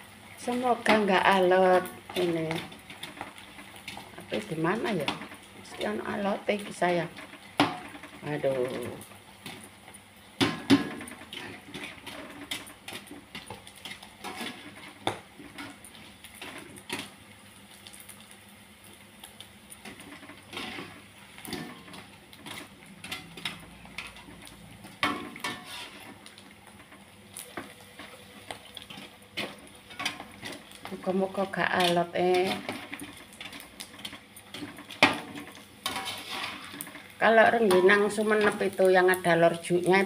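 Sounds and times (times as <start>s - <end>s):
crackers sizzling in hot oil: 0.0s - 40.0s
metal skimmer scraping wok: 10.4s - 17.1s, 19.8s - 40.0s.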